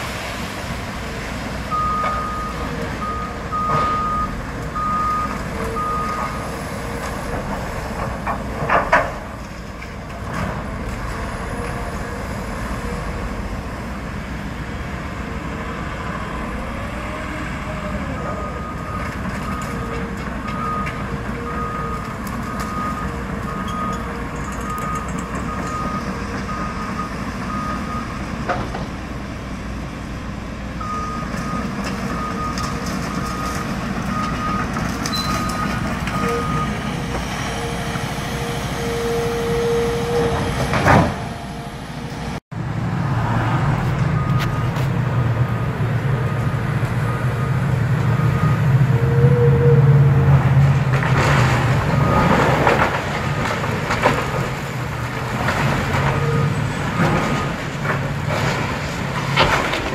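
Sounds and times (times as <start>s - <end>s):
excavator diesel engine running: 0.0s - 59.9s
backup alarm beeping: 1.7s - 6.4s.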